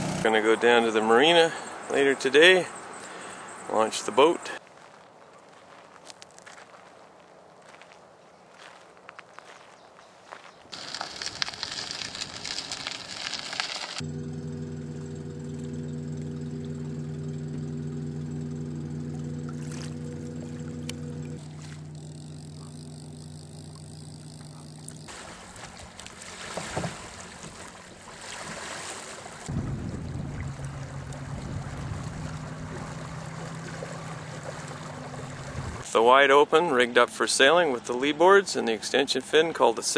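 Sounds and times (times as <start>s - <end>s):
engine running: 0.0s - 0.8s, 10.8s - 28.1s, 29.4s - 35.8s
low engine hum: 11.9s - 28.2s, 29.2s - 35.9s.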